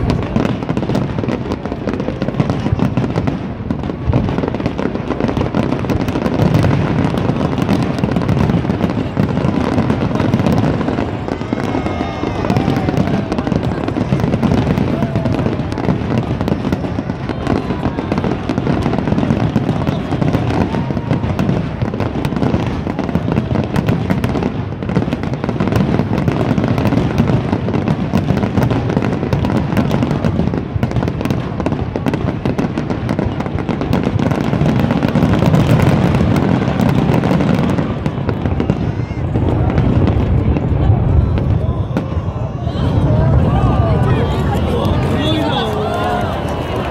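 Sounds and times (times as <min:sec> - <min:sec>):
fireworks crackling and banging: 0:00.0 - 0:46.9.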